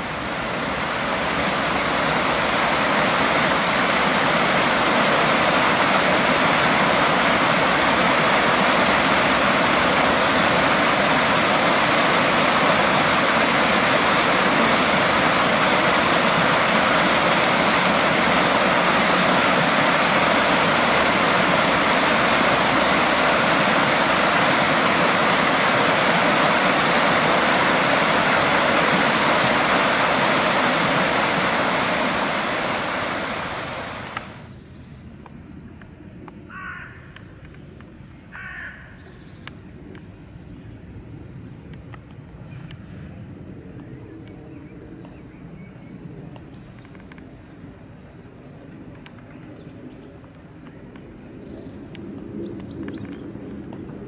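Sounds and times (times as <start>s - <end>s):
stream rushing over rocks: 0.0s - 34.5s.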